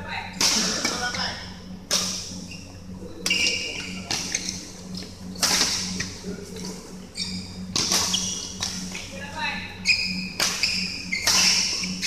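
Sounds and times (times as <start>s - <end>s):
steady low hum: 0.0s - 12.0s
rackets striking shuttlecock: 0.4s - 0.7s, 3.2s - 6.0s, 7.7s - 9.1s, 10.3s - 12.0s.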